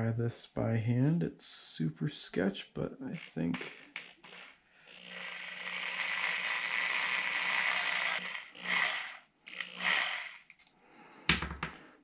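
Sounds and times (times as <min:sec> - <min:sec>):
electric drill spinning: 0:03.2 - 0:10.7.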